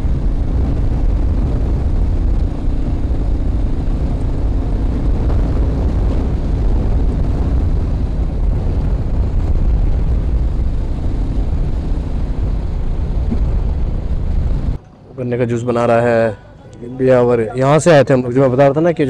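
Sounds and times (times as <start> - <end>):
wind rushing over microphone: 0.0 - 14.8
faint motorcycle engine: 0.0 - 18.1.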